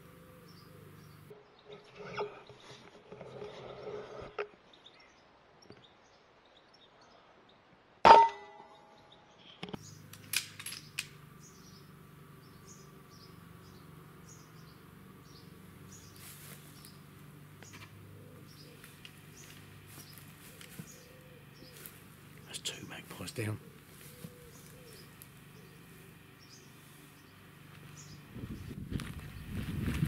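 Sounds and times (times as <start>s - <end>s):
air rifle shot with metallic ring: 8.1s - 8.8s.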